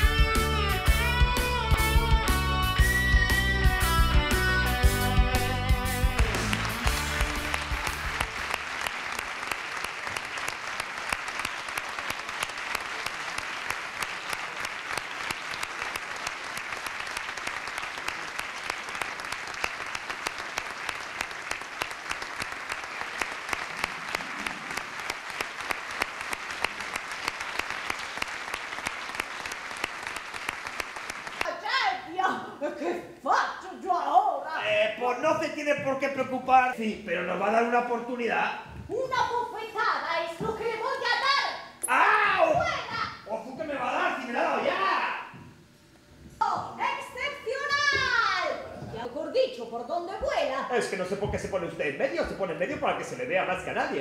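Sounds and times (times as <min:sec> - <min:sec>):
guitar music: 0:00.0 - 0:08.4
audience applauding: 0:03.4 - 0:31.7.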